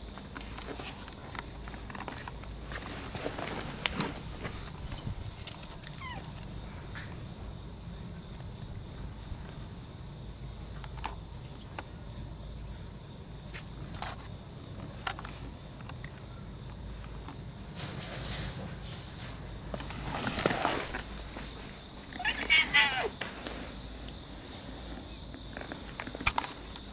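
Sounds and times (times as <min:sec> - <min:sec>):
insects chirring: 0:00.0 - 0:26.9
handheld camera rumble: 0:00.2 - 0:07.1.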